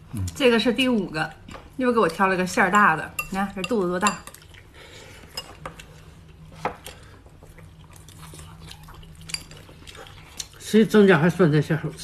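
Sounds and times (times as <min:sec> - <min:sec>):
chopsticks clinking on bowls: 0:02.0 - 0:04.6, 0:05.3 - 0:06.0, 0:09.1 - 0:10.5.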